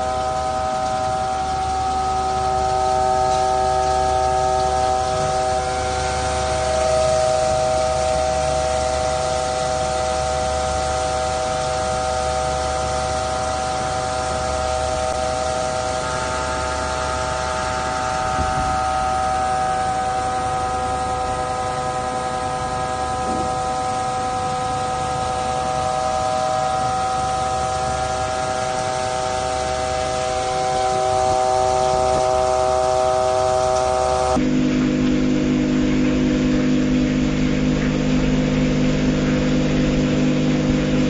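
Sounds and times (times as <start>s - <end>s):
coolant spraying hiss: 0.0s - 34.4s
grinding wheel whine: 0.0s - 41.0s.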